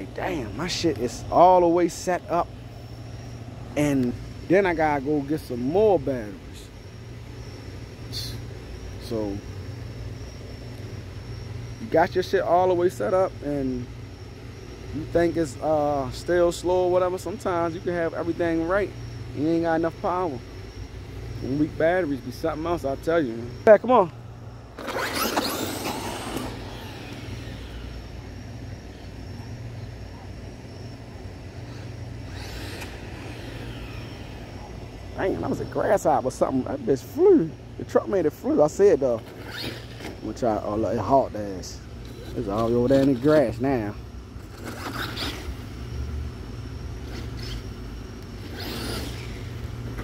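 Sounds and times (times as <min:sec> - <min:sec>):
steady low hum: 0:00.0 - 0:50.0
electric motor whining: 0:19.8 - 0:29.8, 0:30.7 - 0:35.8, 0:47.0 - 0:50.0
tyres churning through grass: 0:21.4 - 0:45.7
tyres running on asphalt: 0:24.0 - 0:28.2.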